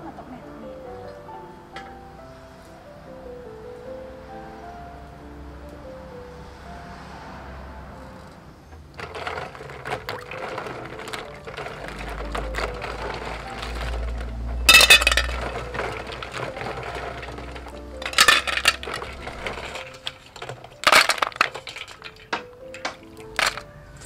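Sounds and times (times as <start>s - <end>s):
soft background music: 0.0s - 24.0s
snail shells clinking: 8.8s - 24.0s
water splashing in a bowl: 9.0s - 20.2s.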